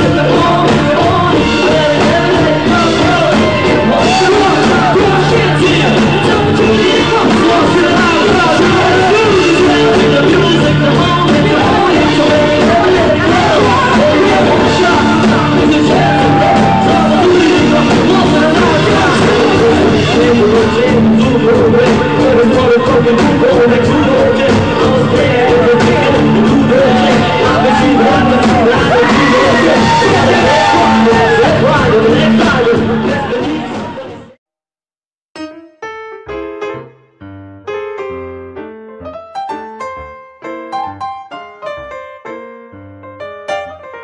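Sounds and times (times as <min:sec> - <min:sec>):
live rock band playing: 0:00.0 - 0:34.3, 0:39.2 - 0:42.5, 0:43.2 - 0:44.0
piano chords: 0:35.4 - 0:44.0.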